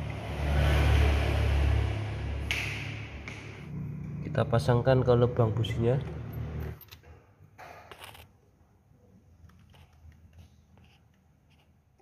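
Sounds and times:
small clicks and scrapes: 7.8s - 8.3s, 9.4s - 12.0s.

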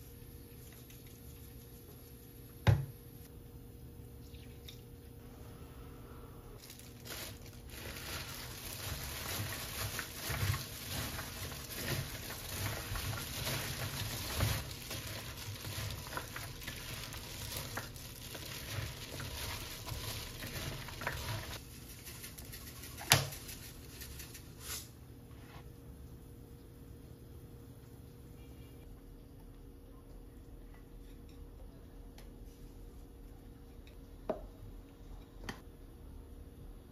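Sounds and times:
gloved hand mixing wet vegetables: 6.6s - 24.6s.

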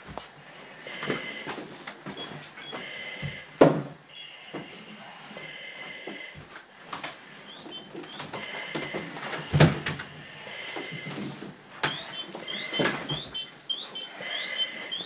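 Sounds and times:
high electronic tones: 6.6s - 15.0s.

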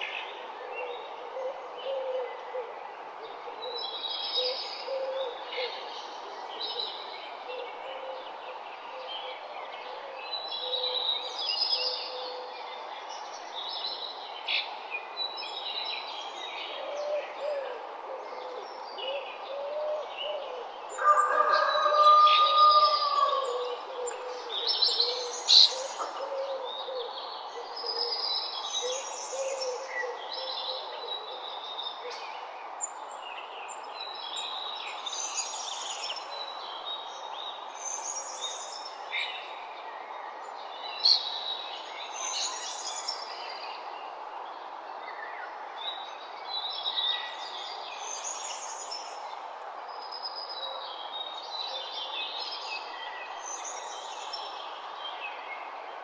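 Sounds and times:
background hiss: 21.9s - 56.0s.

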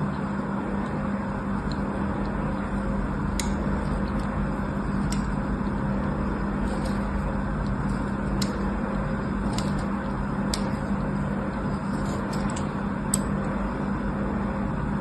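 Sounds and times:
constant low hum: 0.0s - 15.0s.

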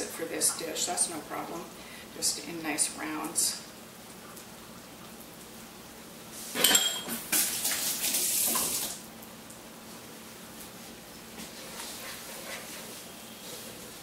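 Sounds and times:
utensil clattering in sink: 6.6s - 7.8s.

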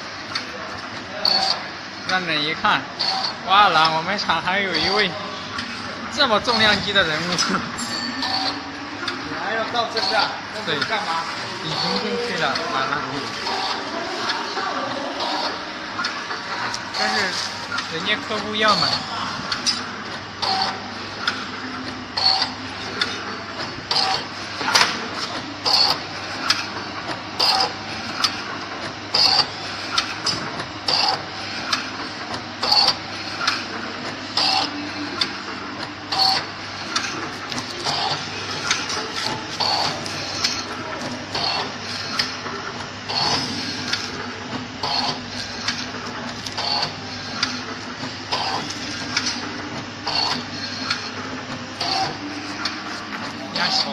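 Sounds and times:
low machine hum: 0.0s - 53.9s.

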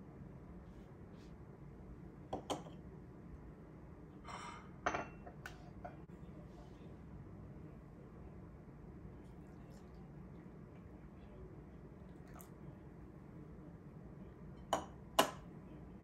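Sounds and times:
ceramic clinking on countertop: 2.3s - 2.8s, 4.3s - 6.0s, 14.6s - 15.5s.

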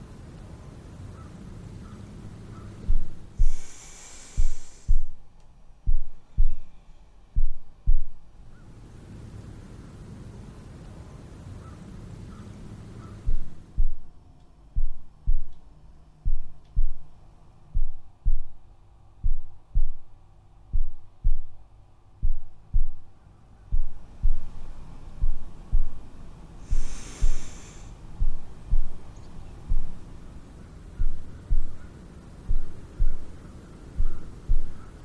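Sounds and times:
heartbeat thumps: 2.3s - 8.4s, 13.2s - 30.2s, 30.9s - 35.0s
short breathy hiss: 2.8s - 5.4s, 26.6s - 29.8s.

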